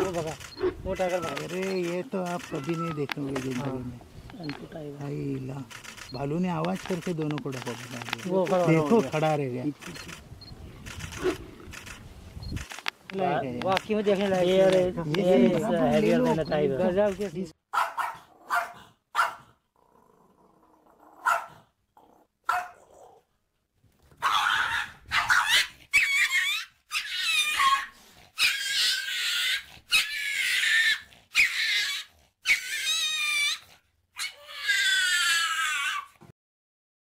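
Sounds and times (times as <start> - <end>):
small dog yapping: 17.7 - 19.4, 21.2 - 21.6, 22.5 - 22.9, 24.2 - 36.2
small dog barking and growling: 17.7 - 19.6, 20.8 - 21.7, 22.4 - 23.2, 24.2 - 33.6.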